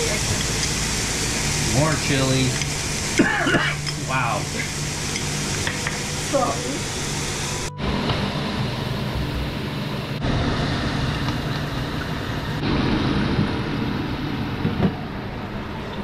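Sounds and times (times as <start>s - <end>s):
meat sizzling in a frying pan: 0.0s - 7.6s.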